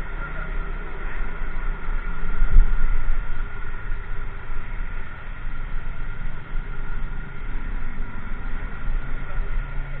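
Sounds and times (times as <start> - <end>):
wind on microphone: 1.4 - 6.4.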